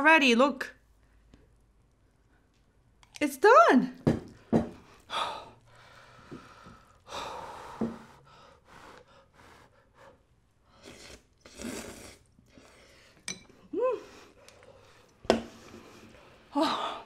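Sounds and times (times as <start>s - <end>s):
breathy blowing: 4.8s - 11.2s
slurping noodles: 10.7s - 13.2s.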